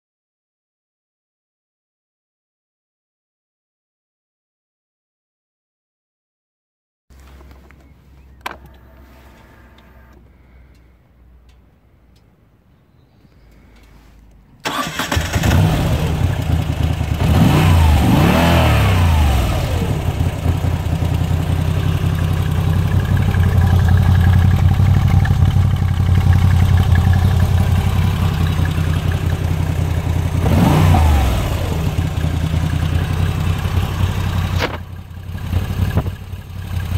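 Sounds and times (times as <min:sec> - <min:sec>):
motorcycle engine starting and idling: 0:07.2 - 0:12.4, 0:13.7 - 0:36.9
engine revving: 0:14.6 - 0:36.9.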